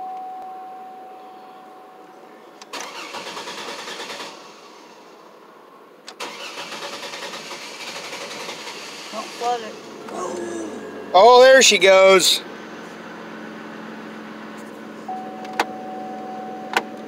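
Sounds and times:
engine cranking by starter: 2.6s - 5.0s, 6.0s - 12.4s.

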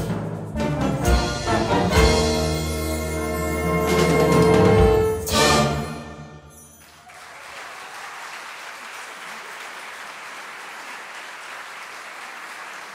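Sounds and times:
audience applause: 6.8s - 12.9s.

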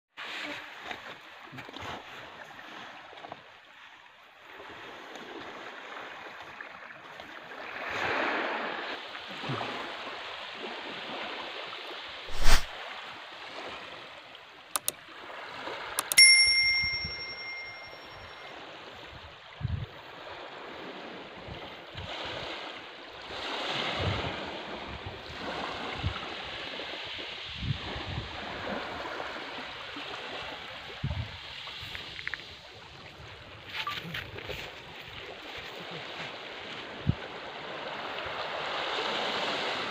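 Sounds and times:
wind: 0.1s - 39.9s
surf lapping on beach: 0.2s - 18.0s, 18.6s - 39.9s
sharp click: 14.8s - 15.0s, 16.0s - 17.7s
bright bell ding: 16.0s - 18.5s.

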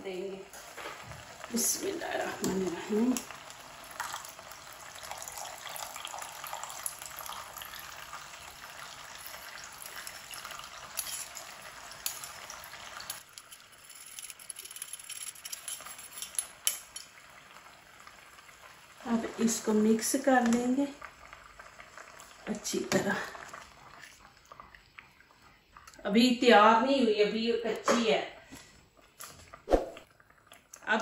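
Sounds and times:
liquid pouring through strainer: 4.9s - 12.2s
metal spoon scraping strainer mesh: 11.0s - 11.4s, 13.1s - 17.0s.

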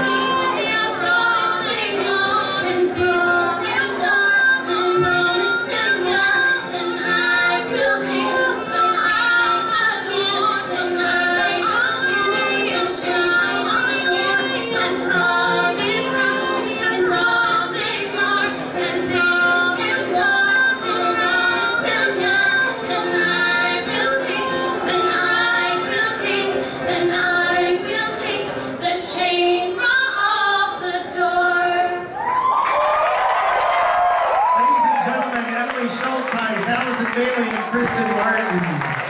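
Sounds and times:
acoustic guitar: 0.0s - 32.2s
women singing in harmony: 0.0s - 32.5s.

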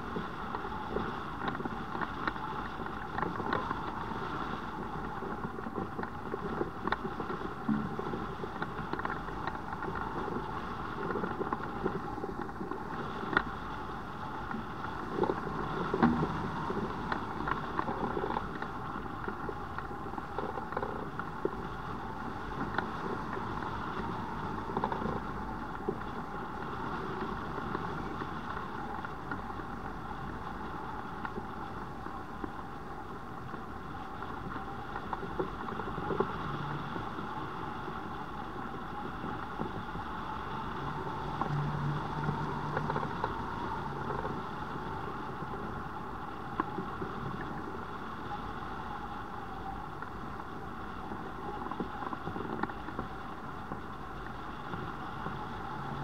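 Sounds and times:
airflow buffeting microphone: 0.0s - 56.0s.

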